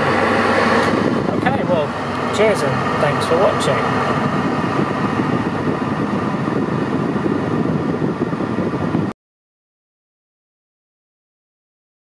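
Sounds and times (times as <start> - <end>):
car engine idling: 0.0 - 8.8
air conditioning fan blowing: 0.0 - 9.2.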